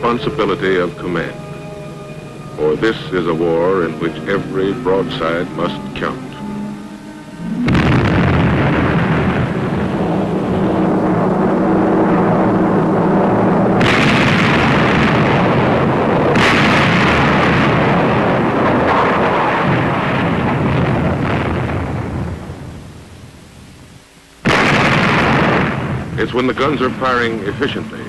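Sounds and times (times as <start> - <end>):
long rolling rumble: 0.0 - 28.0
heavy gun blasts: 13.8 - 22.3, 24.4 - 27.3.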